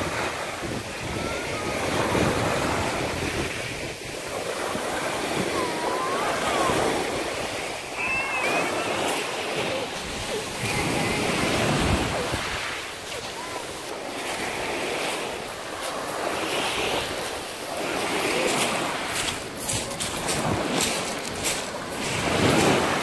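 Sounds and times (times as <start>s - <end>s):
waves washing onto pebble shore: 0.0s - 23.0s.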